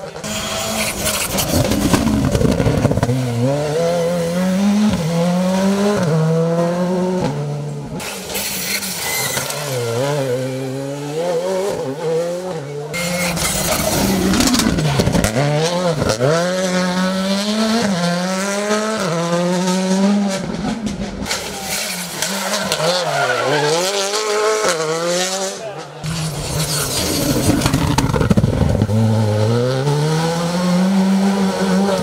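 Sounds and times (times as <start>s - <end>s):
rally car engines revving hard: 0.0s - 32.0s.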